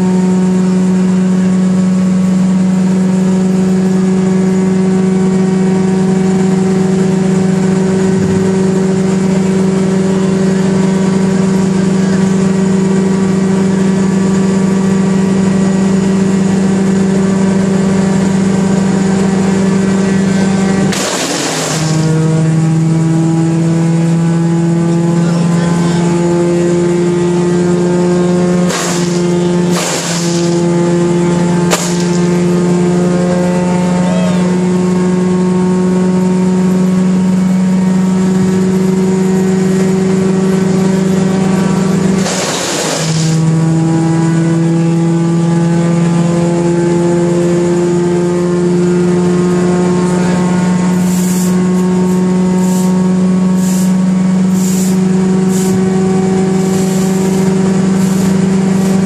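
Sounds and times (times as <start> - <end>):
wood chipper engine running: 0.0 - 59.0
brush crunching in chipper: 20.9 - 22.1, 28.7 - 30.6, 31.7 - 32.3, 42.1 - 43.5.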